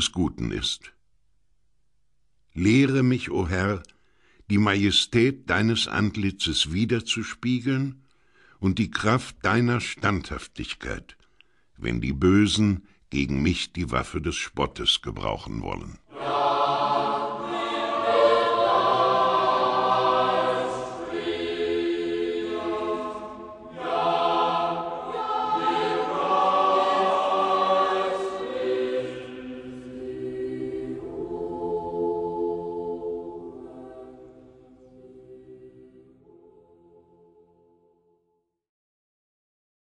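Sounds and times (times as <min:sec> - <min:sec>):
choir singing: 0:16.1 - 0:37.6.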